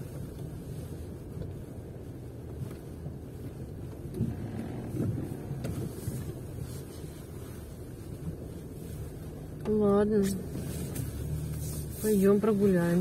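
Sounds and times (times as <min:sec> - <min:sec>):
engine and tyres rumble: 0:00.0 - 0:13.0.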